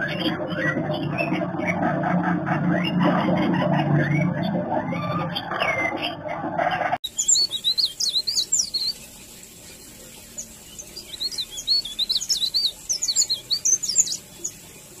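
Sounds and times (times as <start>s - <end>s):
songbird twittering: 7.0s - 9.1s, 9.7s - 14.7s.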